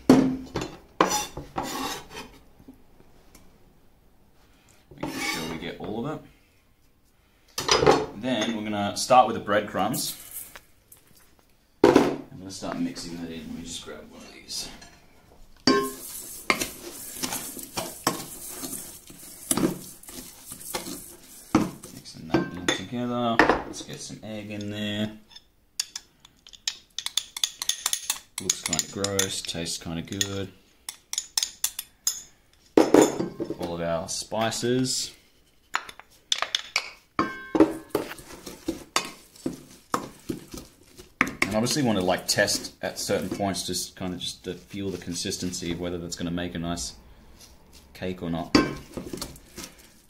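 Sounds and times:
crumbly mix scraping in bowl: 0:15.9 - 0:22.1, 0:38.0 - 0:45.8.

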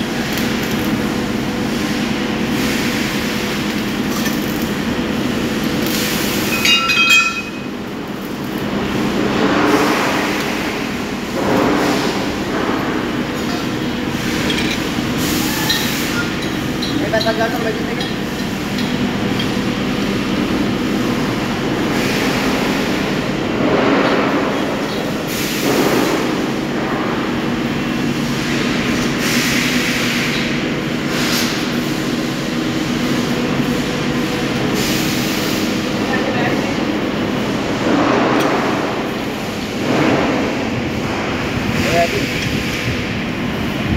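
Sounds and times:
machine shop machinery running: 0:00.0 - 0:43.9
faint metallic clinks: 0:06.6 - 0:07.6.

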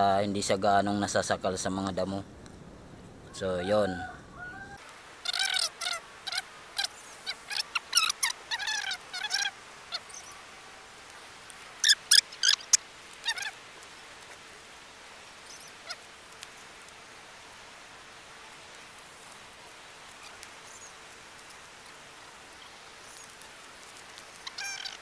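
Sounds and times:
birds chirping: 0:03.3 - 0:10.4, 0:11.7 - 0:13.6, 0:15.4 - 0:17.4, 0:24.2 - 0:25.0.

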